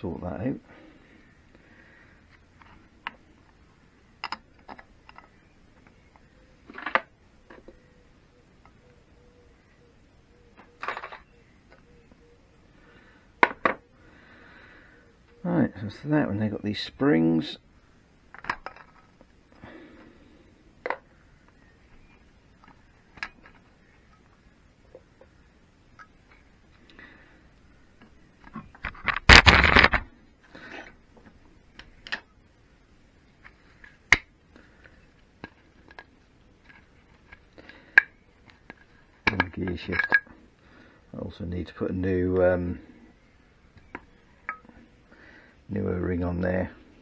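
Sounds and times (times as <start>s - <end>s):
small metal parts clicking: 35.8s - 40.4s.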